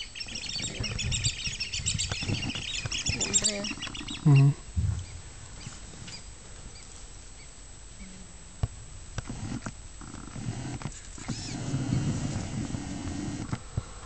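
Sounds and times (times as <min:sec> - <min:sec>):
lions growling: 0:09.3 - 0:13.6.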